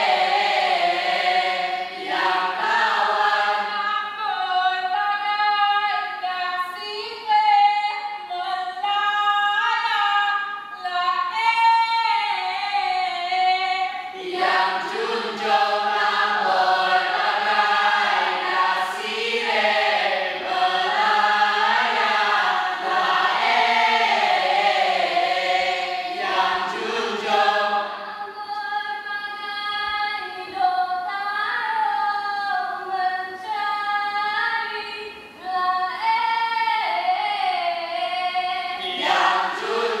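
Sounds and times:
group singing unaccompanied: 0.0s - 6.8s, 11.8s - 30.7s, 35.4s - 40.0s.

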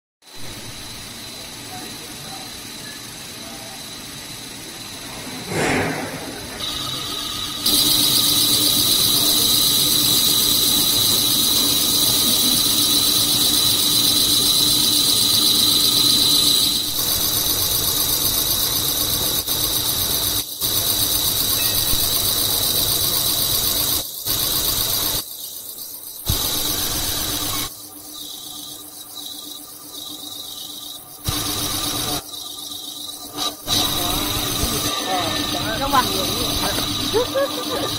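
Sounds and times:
high-pitched machine whine: 0.3s - 37.9s
low machine hum: 0.4s - 15.4s.

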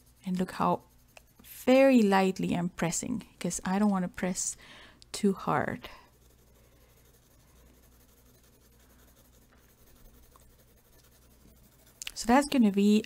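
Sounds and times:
pencil scratching on paper: 0.0s - 4.5s, 5.3s - 13.0s.

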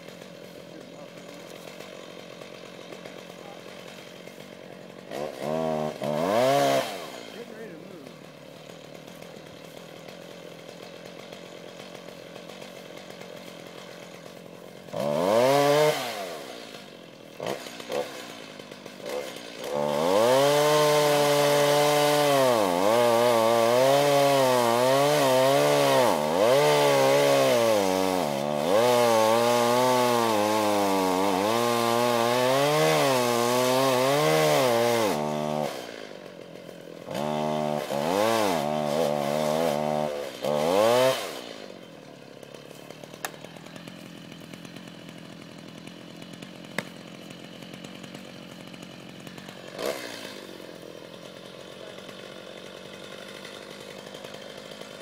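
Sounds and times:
chainsaw cutting wood: 0.0s - 55.0s.

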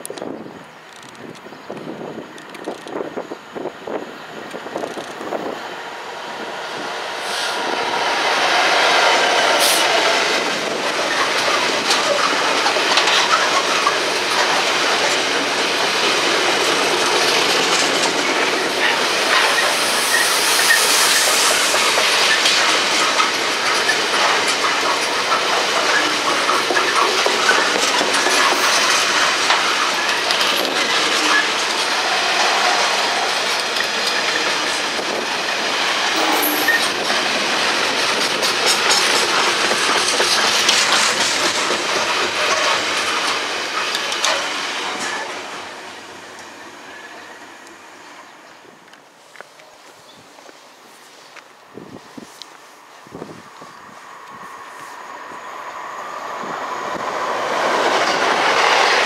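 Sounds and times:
freight train wheels rumbling: 0.0s - 59.0s
wheels clacking over rail joints: 6.1s - 47.8s, 56.3s - 59.0s.

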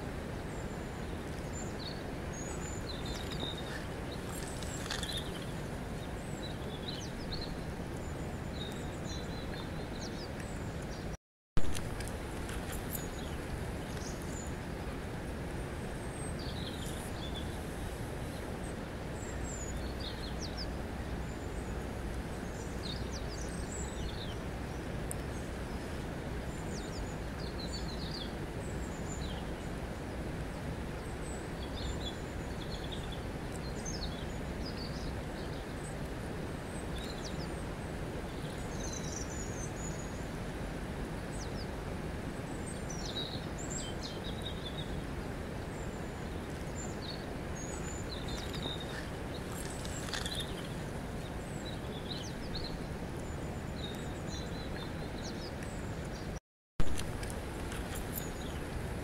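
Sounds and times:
river water over stones: 0.0s - 59.0s.

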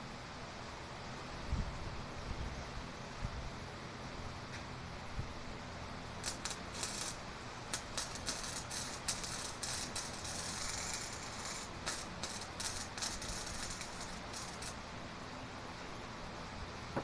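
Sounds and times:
welding arc crackling: 6.1s - 14.9s.

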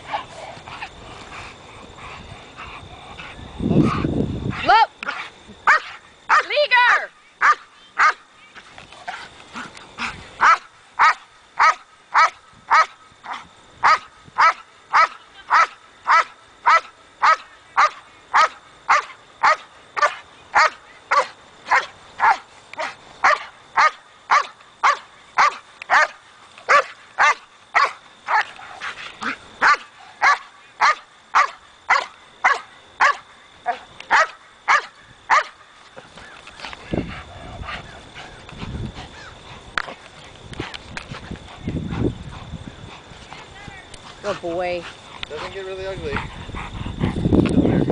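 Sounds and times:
dog barking rhythmically: 5.1s - 8.2s, 10.4s - 28.4s, 29.6s - 33.2s, 34.1s - 35.6s.

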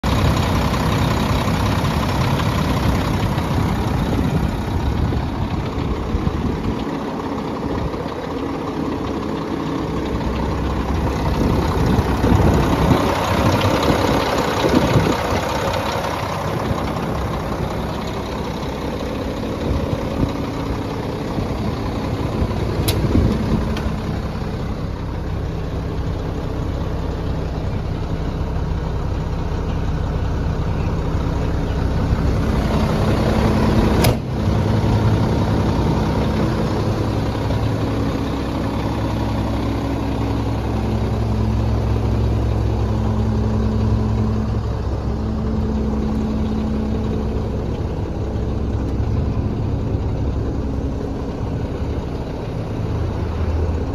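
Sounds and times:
diesel truck engine idling: 0.0s - 53.9s
sharp click: 22.8s - 23.9s, 34.0s - 34.3s.

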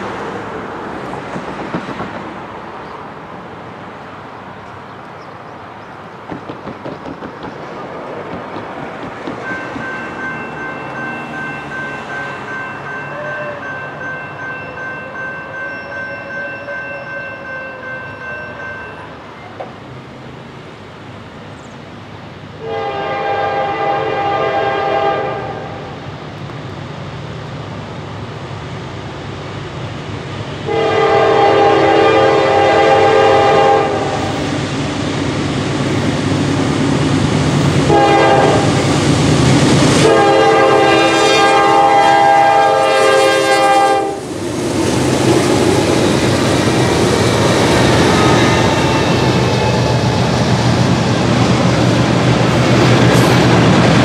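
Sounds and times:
locomotive rumble: 0.0s - 17.5s, 18.1s - 54.0s
locomotive horn blowing: 12.4s - 13.9s, 22.6s - 25.9s, 30.7s - 34.4s, 37.8s - 38.8s, 40.0s - 44.2s.

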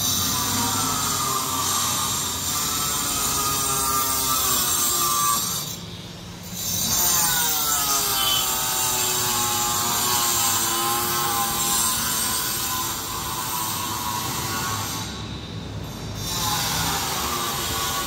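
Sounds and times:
power tool whining: 0.0s - 5.9s.

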